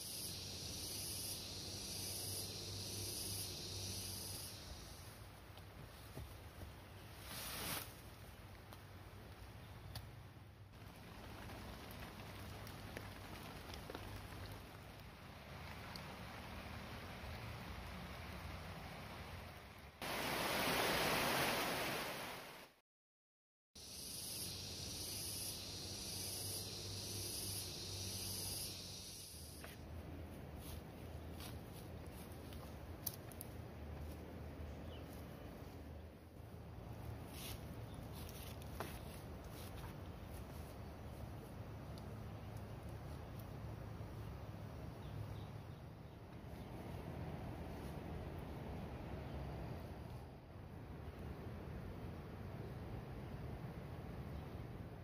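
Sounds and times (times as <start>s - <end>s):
pulsing insect buzz: 0.0s - 5.1s, 23.8s - 29.6s
insects hissing: 0.0s - 5.5s, 23.8s - 29.8s.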